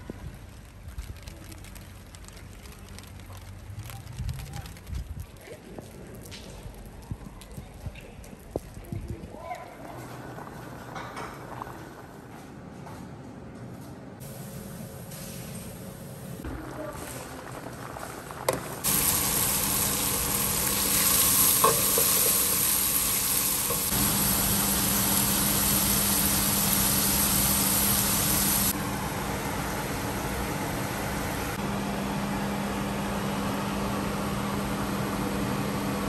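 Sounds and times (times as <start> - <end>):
pasta bubbling: 16.6 - 28.8
food sizzling in a pot: 18.5 - 28.8.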